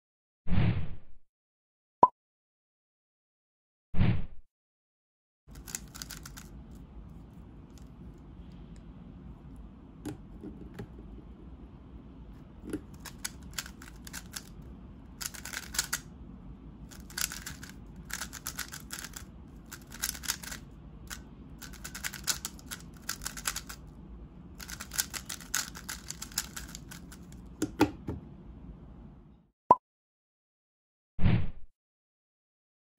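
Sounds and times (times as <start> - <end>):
puzzle cube clicking turns: 5.5 - 6.7, 12.6 - 16.1, 16.9 - 23.8, 24.6 - 27.8.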